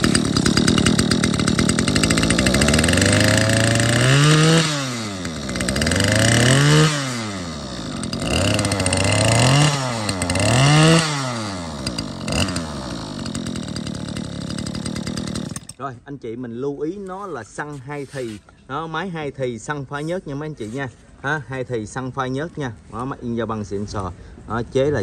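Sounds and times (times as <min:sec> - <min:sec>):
brush-cutter engine revving: 0:00.0 - 0:15.8.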